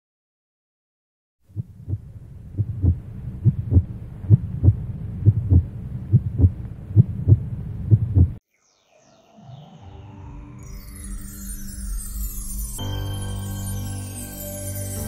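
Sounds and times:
heartbeat thumps: 0:01.5 - 0:08.4
steady low hum: 0:01.5 - 0:08.4.

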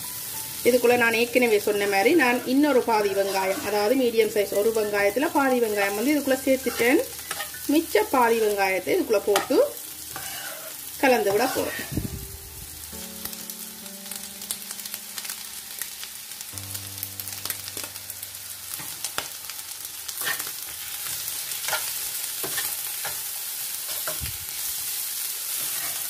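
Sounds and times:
chicken sizzling in frying pan: 0:00.0 - 0:26.0
metal spoon scraping pan: 0:01.8 - 0:04.0, 0:06.6 - 0:07.7, 0:10.1 - 0:11.9, 0:20.2 - 0:20.5, 0:21.6 - 0:23.2, 0:25.6 - 0:26.0.

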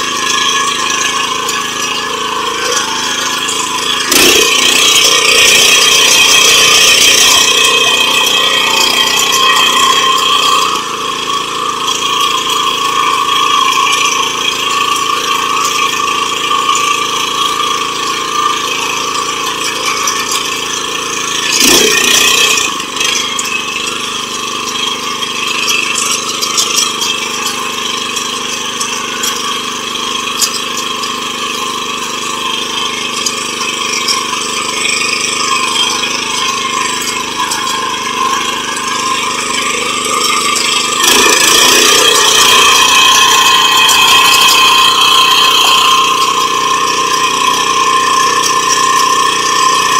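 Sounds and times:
rotary tiller engine running: 0:00.0 - 0:49.9.

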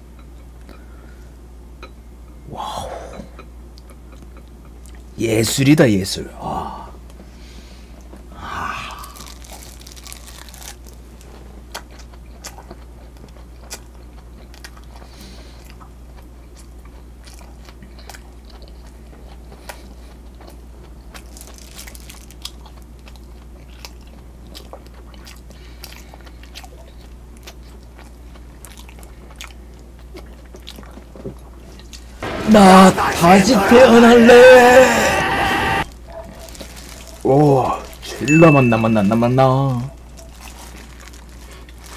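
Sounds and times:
chewing crunchy food: 0:03.2 - 0:05.1, 0:07.9 - 0:32.2, 0:35.9 - 0:38.3, 0:39.7 - 0:41.9
low hum: 0:32.2 - 0:37.0.

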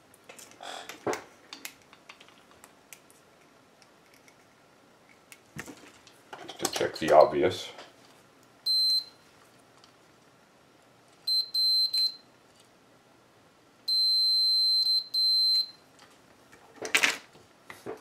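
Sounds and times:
multimeter continuity beeping: 0:08.6 - 0:09.2, 0:11.3 - 0:12.3, 0:13.9 - 0:15.8.

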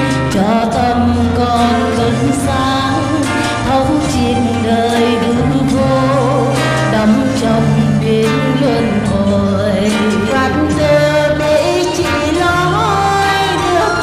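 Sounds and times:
devotional song: 0:00.0 - 0:14.0.

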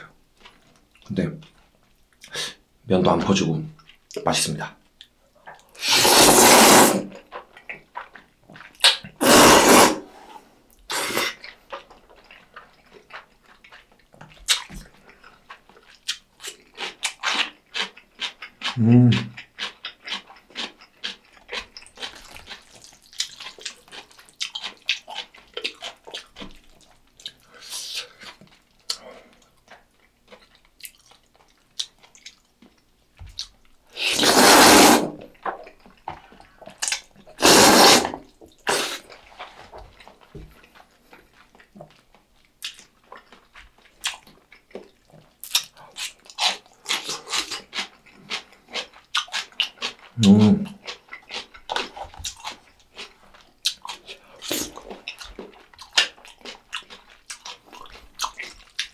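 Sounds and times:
mouth smacks and chewing: 0:03.7 - 0:04.2, 0:04.8 - 0:09.8, 0:10.7 - 0:58.9
noodle slurps: 0:05.7 - 0:07.2, 0:08.8 - 0:10.3, 0:33.9 - 0:35.3, 0:37.3 - 0:39.6.

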